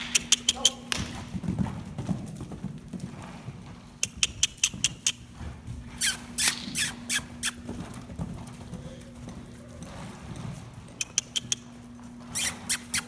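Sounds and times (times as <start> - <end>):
horse hoofbeats on sand: 0.0 - 13.0
person kissing and clucking: 0.1 - 0.8.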